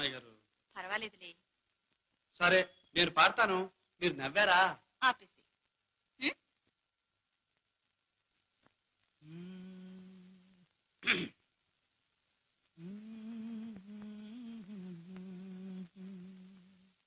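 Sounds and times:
man humming: 9.2 - 10.7, 12.8 - 17.0
man clearing throat: 11.0 - 11.4.

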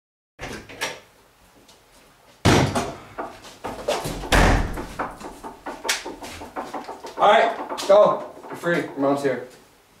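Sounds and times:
door slamming: 2.4 - 8.8
smaller knocks: 2.5 - 9.1.

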